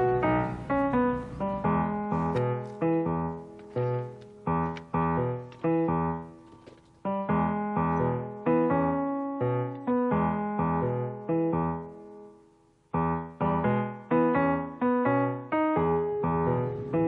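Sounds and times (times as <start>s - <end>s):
piano chords: 0.0s - 17.0s.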